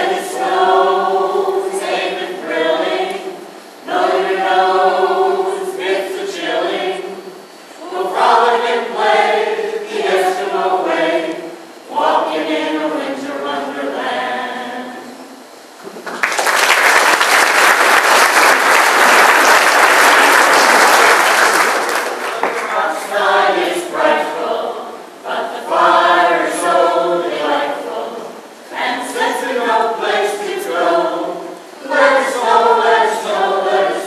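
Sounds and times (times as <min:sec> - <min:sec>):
choir singing: 0:00.0 - 0:15.5, 0:18.2 - 0:34.0
audience applauding: 0:15.8 - 0:23.1.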